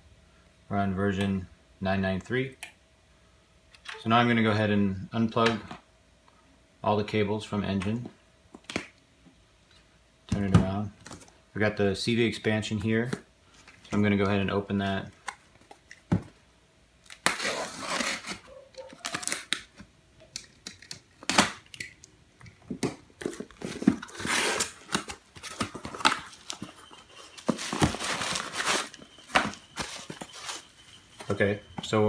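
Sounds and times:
bubble wrap crinkling: 17.1 - 19.7, 23.2 - 31.4
cardboard box being opened: 23.2 - 30.7.

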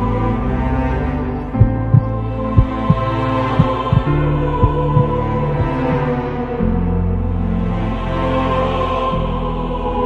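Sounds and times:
held low chords: 0.4 - 7.8
heartbeat-like double thump: 1.6 - 3.0, 3.6 - 6.1.

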